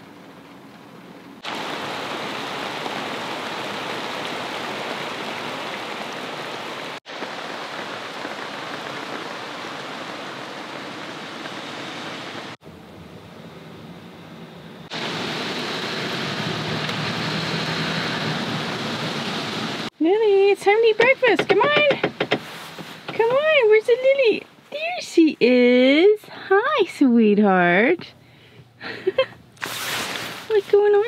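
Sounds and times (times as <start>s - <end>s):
steady rain falling: 0.0s - 12.6s, 14.8s - 25.3s.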